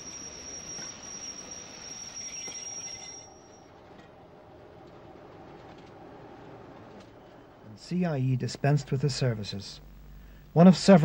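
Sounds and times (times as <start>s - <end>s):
train wheels squealing on rails: 0.0s - 4.1s
low train rumble: 0.0s - 9.6s.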